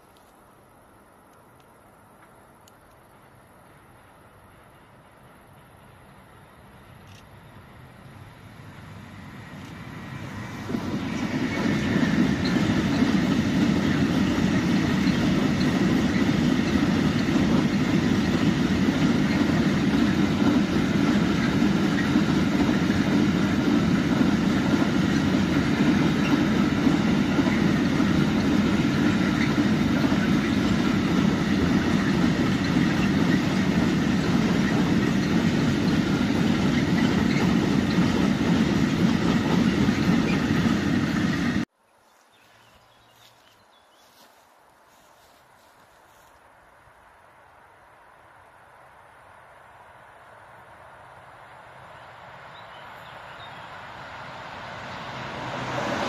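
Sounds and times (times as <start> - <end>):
freight train rumbling on rails: 3.1 - 41.7, 49.9 - 56.0.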